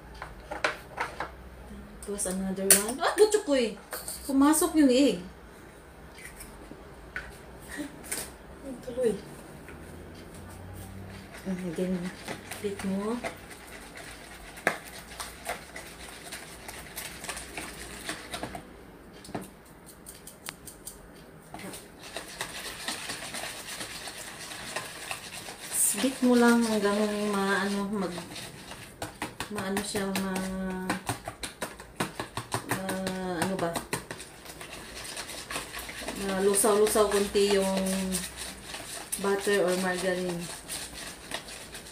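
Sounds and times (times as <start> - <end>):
whisk tapping plastic bowl: 11.1 - 18.7, 21.6 - 41.9.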